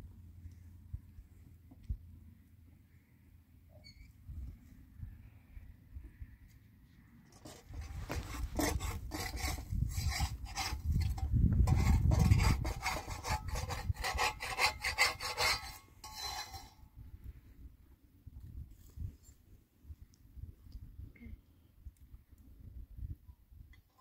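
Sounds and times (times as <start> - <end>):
metal spatula scraping griddle: 7.4 - 16.8.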